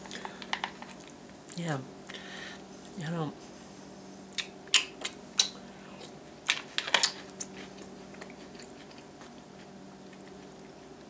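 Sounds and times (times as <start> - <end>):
chewing crunchy cereal: 4.4 - 11.0.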